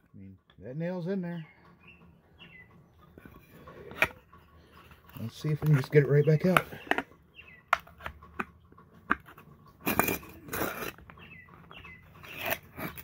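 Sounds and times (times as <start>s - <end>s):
birds chirping faintly: 0.0s - 13.0s
nail creaking out of wood: 9.1s - 11.1s.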